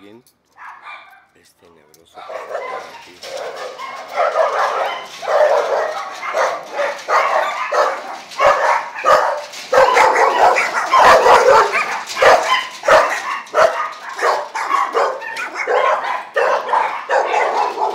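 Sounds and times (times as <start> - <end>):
pack of dogs barking: 0.5 - 1.3, 2.1 - 17.9.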